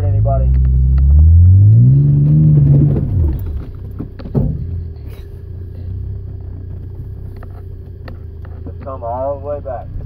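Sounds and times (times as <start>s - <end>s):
engine revving: 0.0s - 5.2s
low steady rumble: 0.0s - 10.0s.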